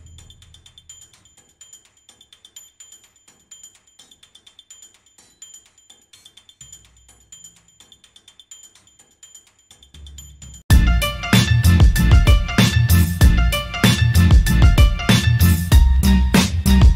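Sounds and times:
low bass: 10.7s - 16.9s.

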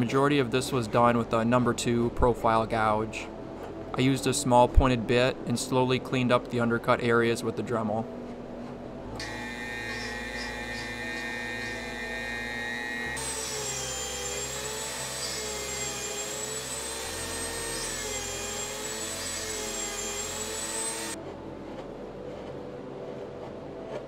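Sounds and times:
rotary tool whining: 8.6s - 22.6s.

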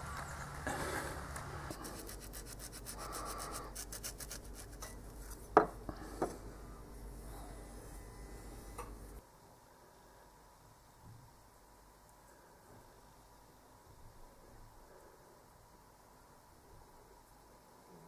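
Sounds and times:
knife scraping fur: 1.7s - 5.5s
hands rubbing pelt on wood: 1.7s - 5.6s.

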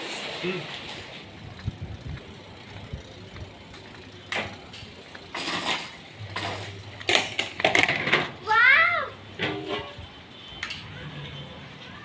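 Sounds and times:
bicycle parts rattling: 0.0s - 8.5s
bicycle freewheel ticking: 1.2s - 5.4s.

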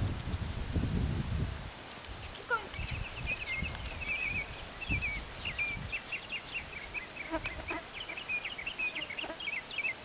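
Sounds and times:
horse hooves on grass: 0.0s - 9.4s
small birds chirping: 2.1s - 10.0s.

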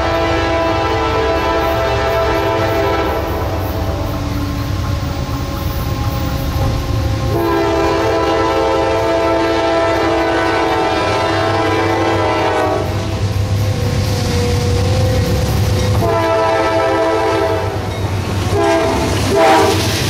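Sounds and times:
locomotive air horn: 0.0s - 4.7s, 5.6s - 13.4s, 16.0s - 17.9s, 18.5s - 20.0s
locomotive and train rumble: 0.0s - 20.0s.

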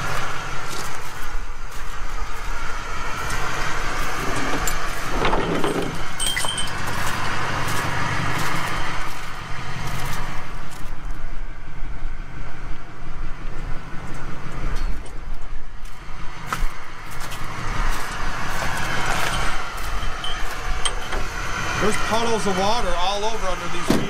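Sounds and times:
footsteps: 0.0s - 11.2s, 14.1s - 21.4s
truck engine idling: 0.0s - 24.0s
handling noises: 3.2s - 11.0s, 14.8s - 21.4s.

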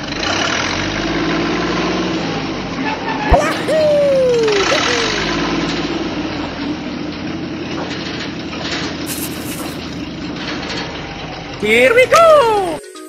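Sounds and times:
toy excavator motors whirring: 8.6s - 10.8s.

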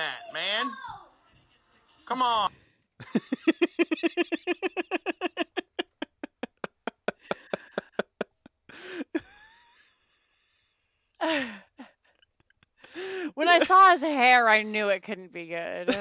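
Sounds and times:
woman laughing hard: 3.0s - 9.6s, 13.0s - 13.9s.

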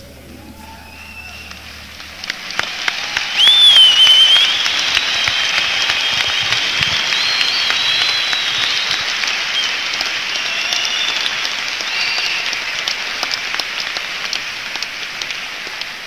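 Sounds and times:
crowd applauding and cheering: 0.0s - 16.0s
whistles from crowd: 0.5s - 1.8s, 2.5s - 13.3s.

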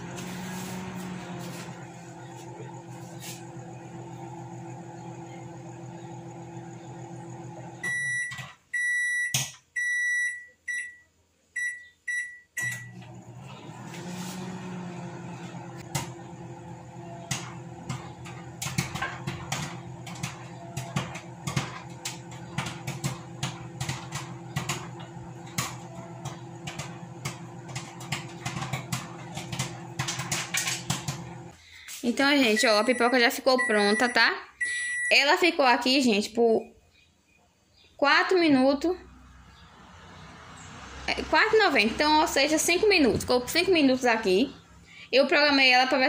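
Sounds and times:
microwave oven humming: 0.0s - 8.6s, 12.6s - 31.6s
popcorn popping: 17.1s - 31.5s.

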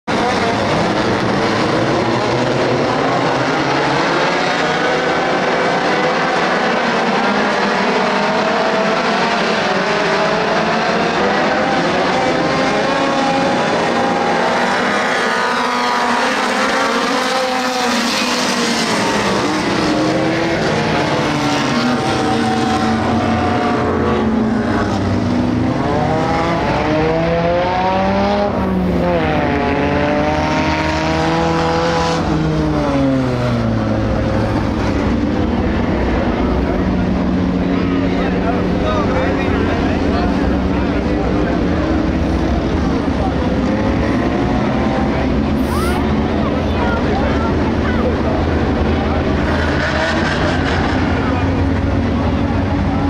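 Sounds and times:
race car engines passing: 0.1s - 53.0s.

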